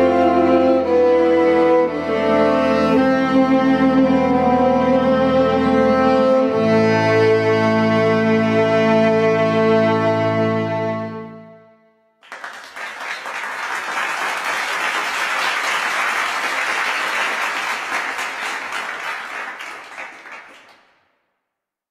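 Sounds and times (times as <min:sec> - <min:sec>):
string chord: 0:00.0 - 0:11.9
audience applause: 0:12.2 - 0:21.0.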